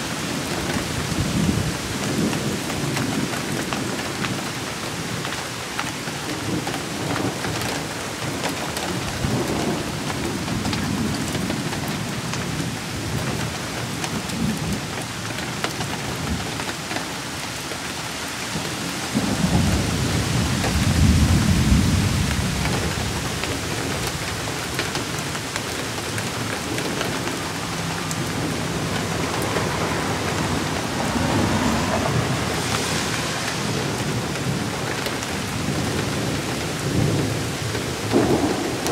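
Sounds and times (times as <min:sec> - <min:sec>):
steady rain falling: 0:00.0 - 0:38.9
thunder rumbling: 0:19.1 - 0:38.9.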